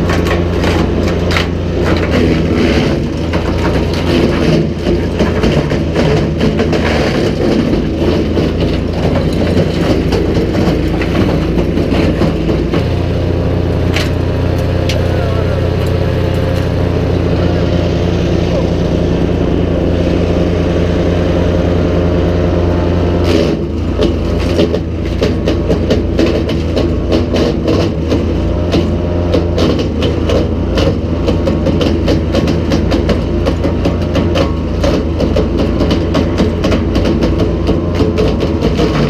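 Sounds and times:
branches cracking and snapping: 0.0s - 19.5s
wood chipper engine running: 0.0s - 39.0s.

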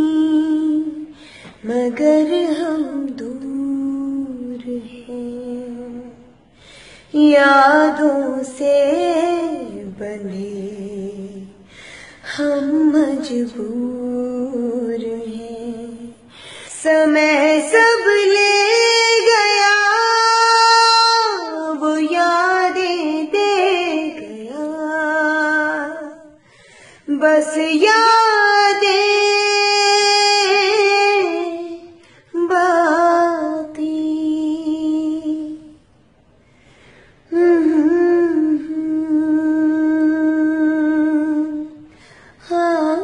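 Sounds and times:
person singing unaccompanied: 7.2s - 26.4s.

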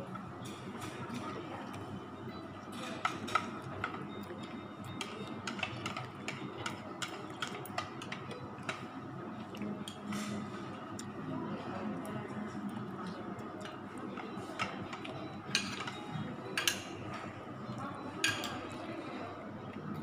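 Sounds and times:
murmur of room noise: 0.0s - 20.0s
spoon clinking on ceramic bowls: 15.5s - 16.9s, 18.2s - 18.6s.

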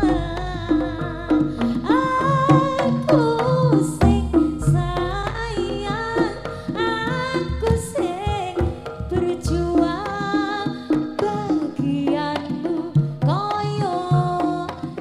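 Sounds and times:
low gong notes: 0.0s - 3.0s
drum strokes: 0.0s - 15.0s
gamelan ensemble: 0.0s - 15.0s
woman singing: 0.0s - 15.0s.

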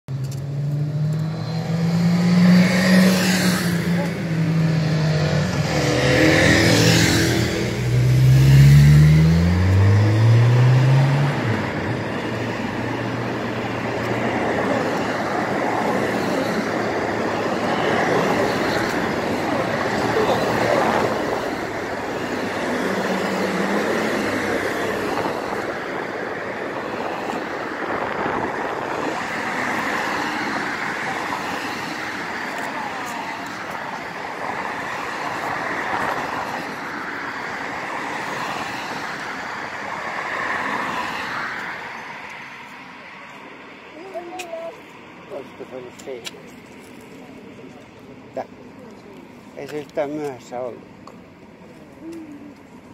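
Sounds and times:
cars passing with tyre noise: 0.1s - 52.9s
motorcycles passing: 0.1s - 52.9s.

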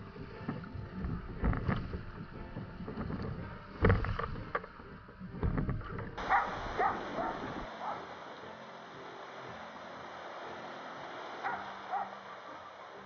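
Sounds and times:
wind buffeting microphone: 0.0s - 7.7s
water splashing against kayak: 0.0s - 13.0s.

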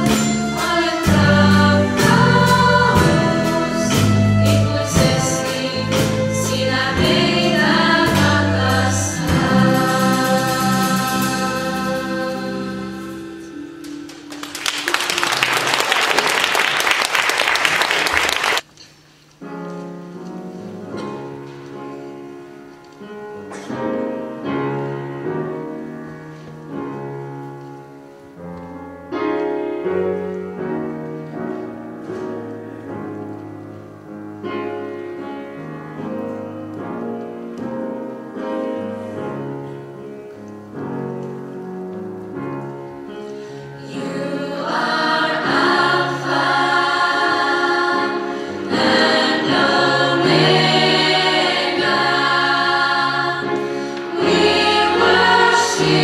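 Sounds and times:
solo piano playing: 0.0s - 15.8s, 19.4s - 56.0s
audience applauding: 14.0s - 18.7s.

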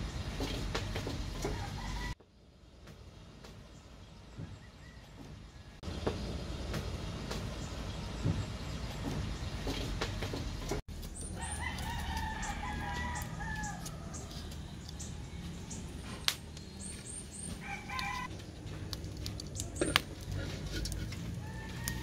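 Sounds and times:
rooster crowing: 1.5s - 2.2s, 11.4s - 14.3s, 17.6s - 18.3s, 21.2s - 22.0s.

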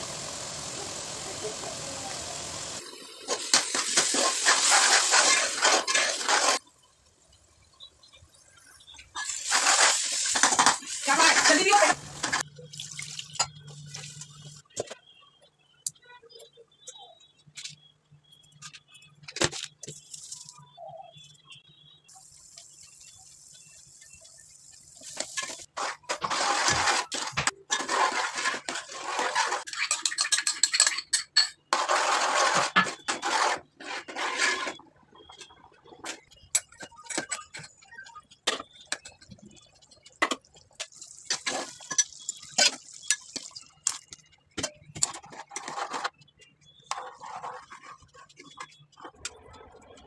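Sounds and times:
metal spoon scraping a pot: 3.3s - 6.6s, 25.2s - 35.4s, 41.3s - 49.7s.

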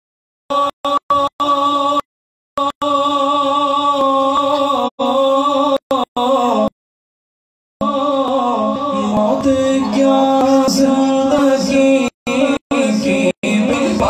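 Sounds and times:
man chanting into a microphone: 7.8s - 14.0s.

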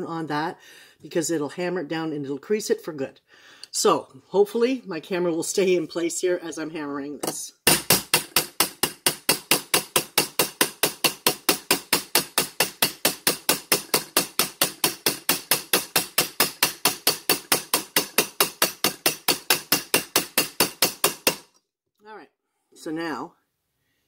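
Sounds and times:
hammer striking metal spoon: 7.7s - 21.4s.

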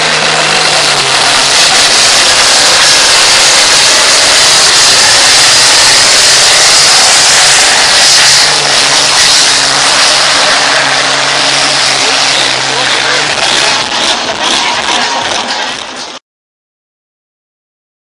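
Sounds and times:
tractor diesel engine roaring: 0.0s - 16.2s.

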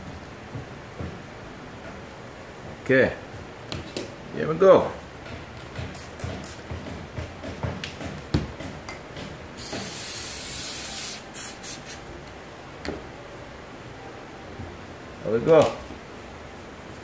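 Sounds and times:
spray hissing: 9.6s - 12.1s.

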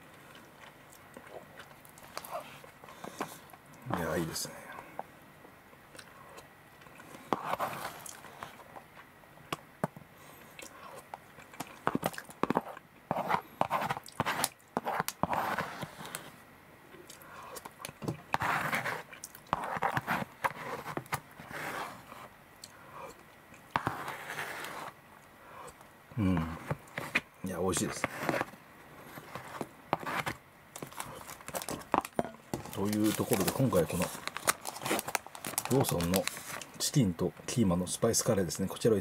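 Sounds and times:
chewing: 0.1s - 3.6s, 10.4s - 12.8s
spoon scraping plastic tray: 11.9s - 16.3s, 18.3s - 22.3s, 23.8s - 25.0s, 27.8s - 35.1s.

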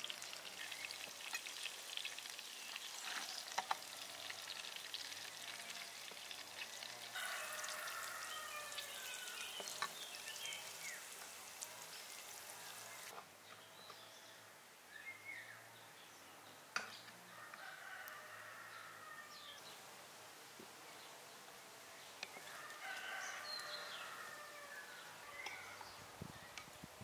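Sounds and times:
frying hiss: 0.0s - 13.2s
rooster crowing: 7.1s - 9.6s, 17.3s - 19.6s, 22.4s - 25.8s.

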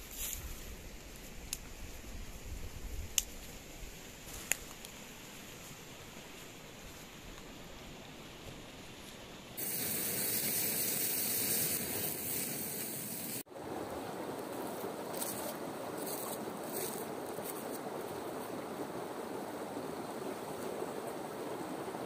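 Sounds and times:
rushing stream water: 5.2s - 22.0s.

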